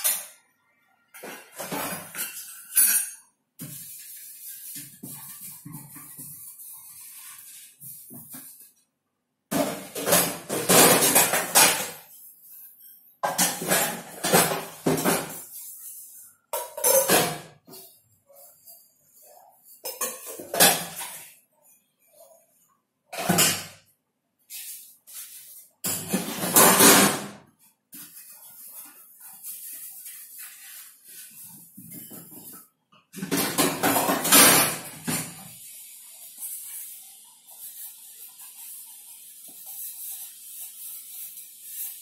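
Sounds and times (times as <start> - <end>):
dishes clattering in sink: 0.0 - 0.4, 1.1 - 6.6, 9.5 - 12.2, 13.2 - 15.6, 16.5 - 18.0, 19.6 - 21.4, 23.1 - 23.9, 25.8 - 36.0.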